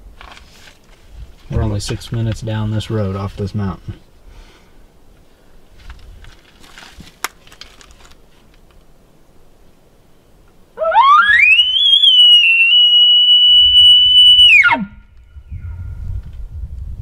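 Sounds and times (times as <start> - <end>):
elk call whistle: 10.8 - 15.1.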